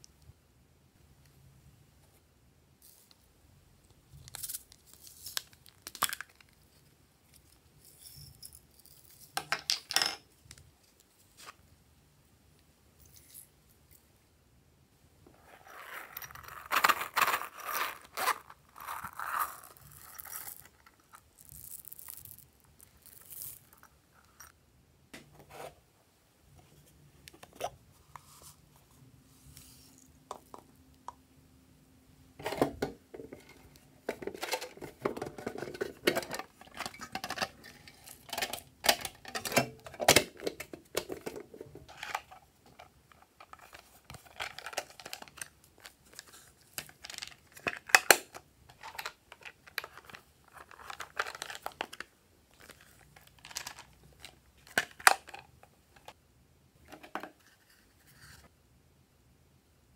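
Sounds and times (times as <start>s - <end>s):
plastic containers clicking and scraping: 15.9s - 21.2s, 32.4s - 56.2s.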